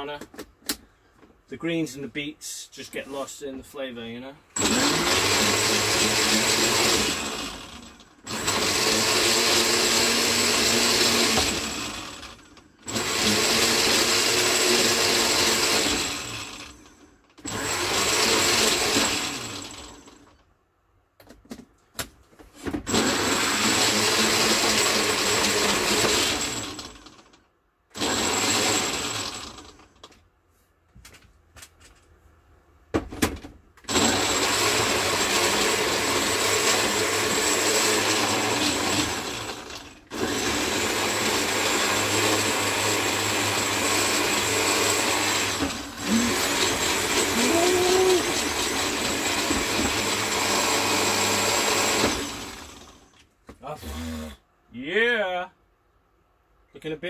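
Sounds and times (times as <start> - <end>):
blender running: 4.6 - 20.3, 22.9 - 27.2, 28.0 - 30.1, 33.9 - 54.4.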